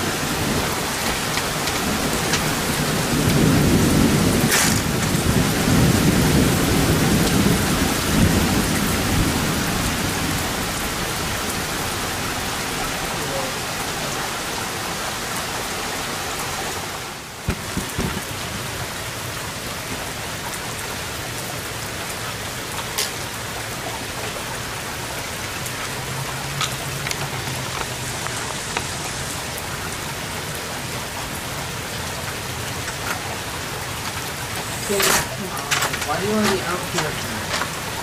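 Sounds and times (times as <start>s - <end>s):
steady rain hiss: 0.0s - 38.0s.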